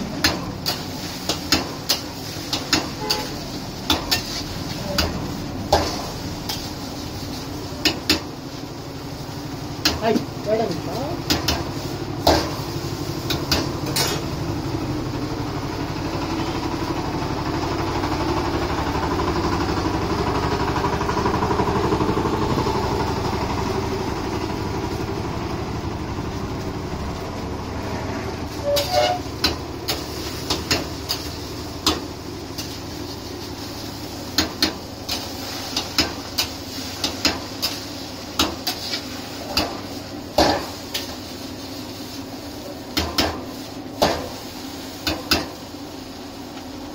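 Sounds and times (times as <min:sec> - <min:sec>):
low mechanical hum: 0:00.0 - 0:46.9
metal spatula scraping a wok: 0:00.1 - 0:08.2, 0:11.3 - 0:14.4, 0:28.5 - 0:45.6.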